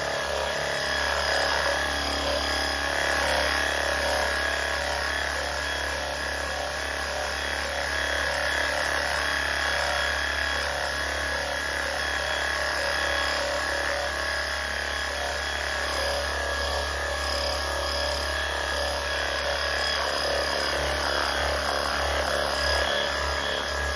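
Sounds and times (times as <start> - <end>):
pressure cleaner whining: 16.5 - 23.9.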